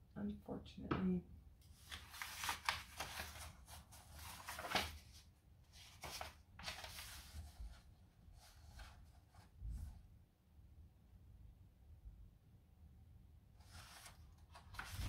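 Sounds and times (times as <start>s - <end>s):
paper pages rustling: 1.6s - 9.5s, 13.6s - 15.0s.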